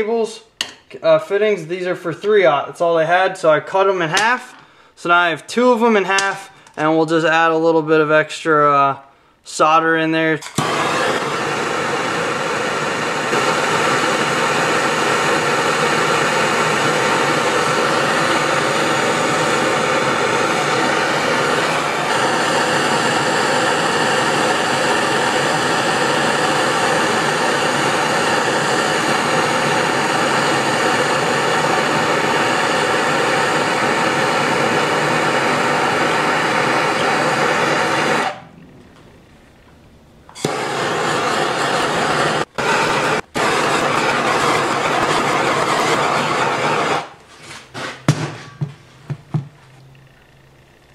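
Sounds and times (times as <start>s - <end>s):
gas torch flame hissing: 10.4s - 38.5s, 40.3s - 48.1s.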